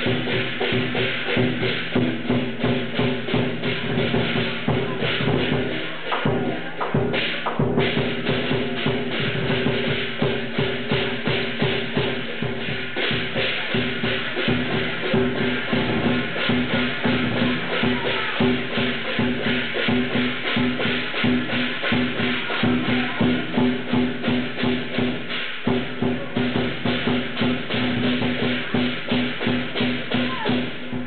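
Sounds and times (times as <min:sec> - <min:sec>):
cymbals: 0:00.0 - 0:31.0
drum: 0:00.0 - 0:31.0
gong: 0:06.3 - 0:31.0.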